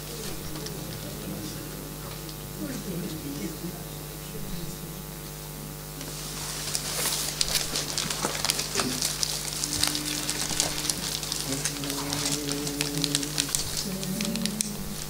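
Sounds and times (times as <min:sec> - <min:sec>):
paper sheets rustling: 0:06.0 - 0:15.0.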